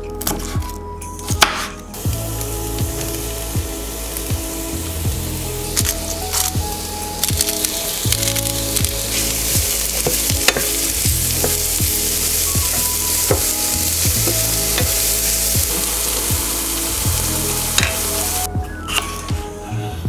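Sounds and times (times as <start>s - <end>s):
vegetables sizzling in a frying pan: 2.0s - 18.5s.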